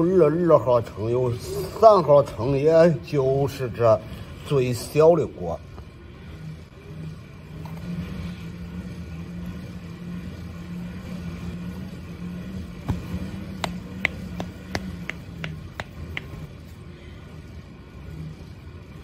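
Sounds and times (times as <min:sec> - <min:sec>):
low motor hum: 0:05.6 - 0:19.0.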